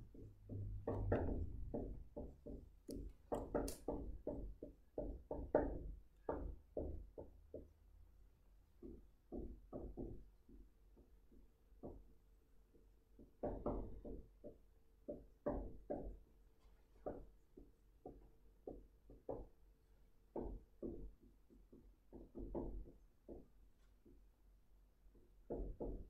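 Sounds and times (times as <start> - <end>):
pen tapping on writing surface: 0.1 - 7.0.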